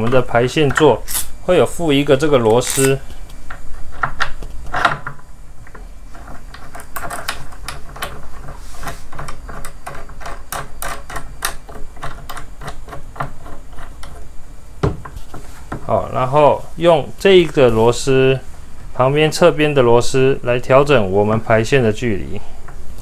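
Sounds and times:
small metal parts clicking: 2.4s - 14.3s.

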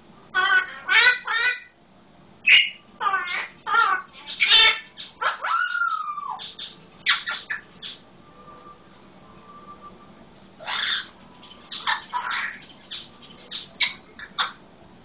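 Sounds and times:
parrot squawking: 0.3s - 1.8s, 2.4s - 8.0s, 10.6s - 14.6s
parrot whistling: 2.4s - 14.6s.

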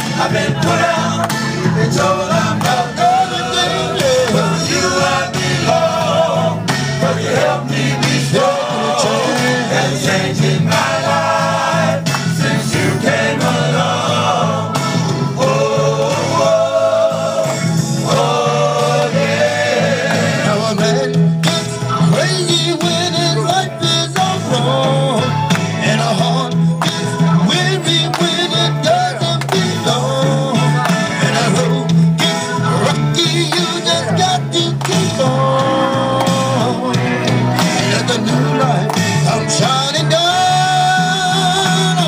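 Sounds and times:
backing bass line: 0.0s - 42.0s
men singing gospel: 0.0s - 42.0s
hands clapping: 1.2s - 1.6s, 2.5s - 3.0s, 4.0s - 4.6s, 12.0s - 12.4s, 17.4s - 17.7s, 20.1s - 23.4s, 24.1s - 24.4s, 25.4s - 25.8s, 26.8s - 30.0s, 30.7s - 34.0s, 34.7s - 35.3s, 36.1s - 36.7s, 37.5s - 39.3s.

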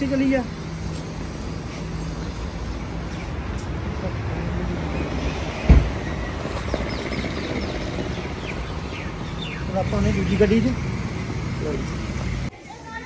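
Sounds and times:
engine and tyre rumble: 0.0s - 13.0s
loud low thump: 5.6s - 6.0s.

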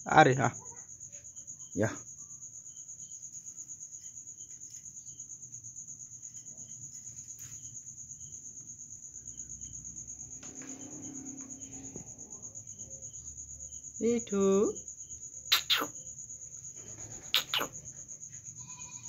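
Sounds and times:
cricket chirping: 0.0s - 19.0s.

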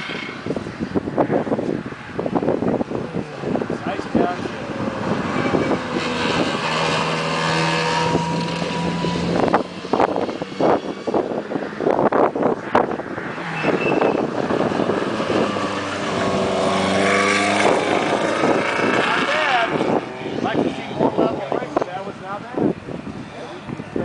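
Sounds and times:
race car engine at high revs: 0.0s - 24.0s
wind buffeting microphone: 0.0s - 24.0s.

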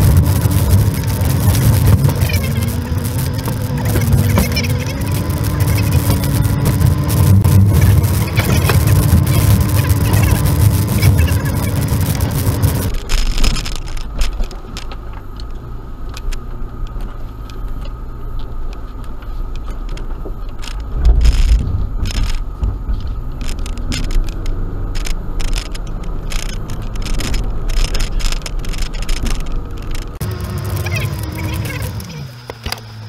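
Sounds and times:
vehicle clicks knocks and rattles: 0.0s - 30.3s
low engine hum: 0.0s - 33.0s
heavy vehicle bump: 17.8s - 30.2s.

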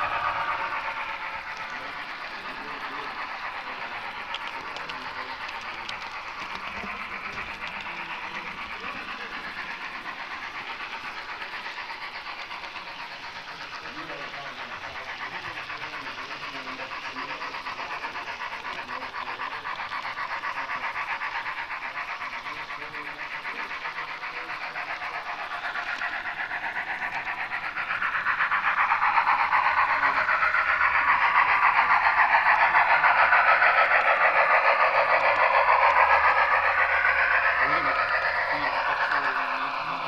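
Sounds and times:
model train pulsing: 0.0s - 40.0s.

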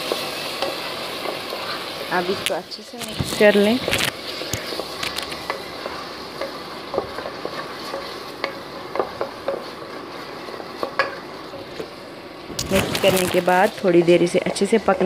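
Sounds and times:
frying sizzle: 0.0s - 15.0s
wooden spatula scraping a pot: 3.2s - 11.7s.

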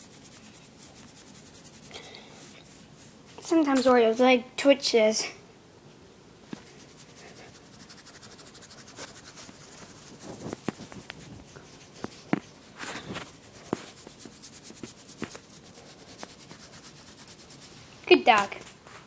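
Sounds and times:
hand stroking dog fur: 0.0s - 3.2s, 6.6s - 17.8s.

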